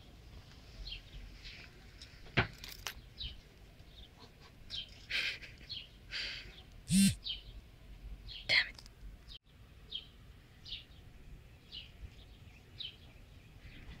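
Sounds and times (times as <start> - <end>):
birds chirping: 2.9 - 14.0.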